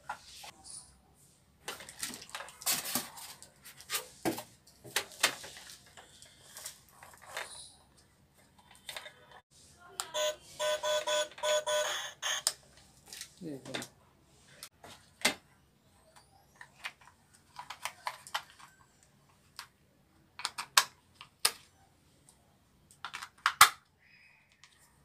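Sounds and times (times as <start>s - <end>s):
plastic toy car clicks and knocks: 16.6s - 18.7s, 20.4s - 21.6s, 22.9s - 23.9s.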